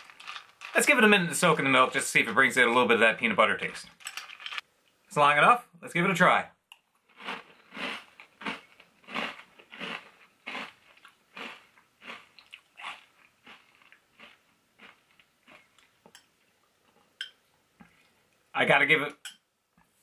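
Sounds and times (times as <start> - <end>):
person crunching cereal: 0.0 - 2.2, 4.0 - 4.6, 7.0 - 16.0.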